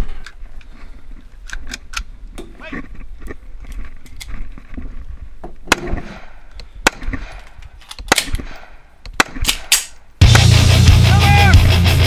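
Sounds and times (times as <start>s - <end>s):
rifle shots: 5.7s - 10.5s.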